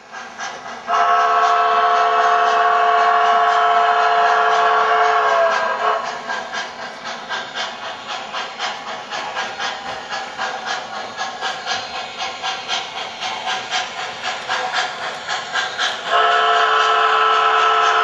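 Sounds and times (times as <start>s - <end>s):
model locomotive steam chuff: 0.0s - 18.0s
steam whistle blowing: 0.9s - 6.2s, 16.1s - 18.0s.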